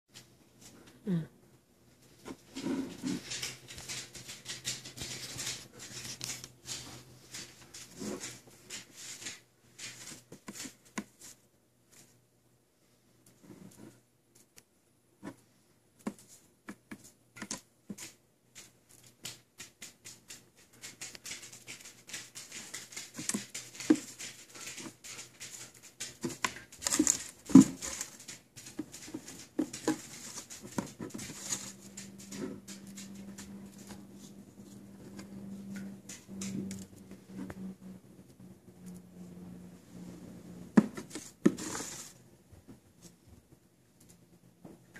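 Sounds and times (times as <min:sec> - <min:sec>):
pet claws tapping on tile: 0:16.0 - 0:34.1, 0:34.7 - 0:37.6.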